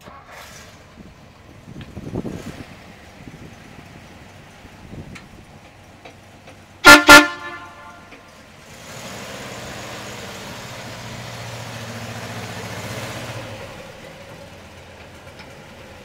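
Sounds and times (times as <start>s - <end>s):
truck engine running: 0.0s - 16.0s
truck horn honks: 6.8s - 8.3s.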